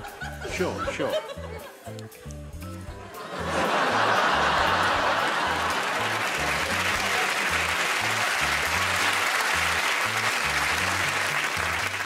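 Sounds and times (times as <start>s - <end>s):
background music with low bass line: 0.0s - 12.0s
studio audience applause: 3.4s - 12.0s.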